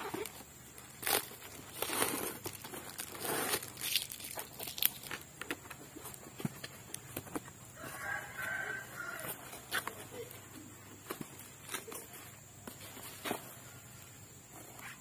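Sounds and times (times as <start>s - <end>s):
cardboard ripping and crinkling: 0.0s - 5.2s
rooster crowing: 7.7s - 9.6s.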